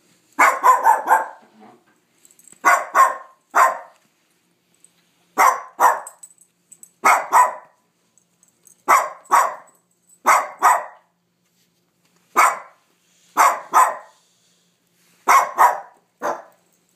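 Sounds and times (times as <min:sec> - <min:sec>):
small dog barking: 0:00.4 - 0:01.5, 0:02.6 - 0:04.0, 0:05.4 - 0:06.2, 0:07.0 - 0:07.8, 0:08.9 - 0:11.1, 0:12.4 - 0:12.8, 0:13.4 - 0:14.2, 0:15.2 - 0:16.6.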